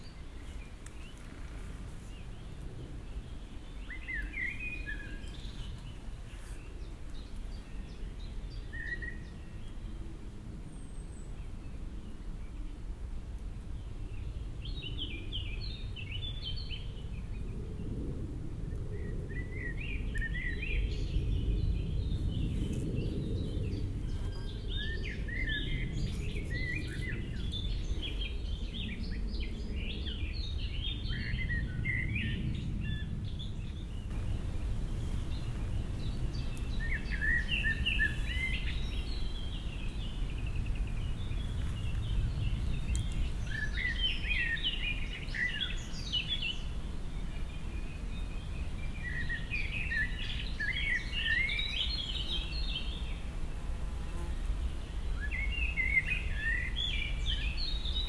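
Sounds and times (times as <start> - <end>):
songbirds chirping and singing: 0.0 - 10.1, 13.8 - 53.2
steady low rumble: 16.8 - 46.4.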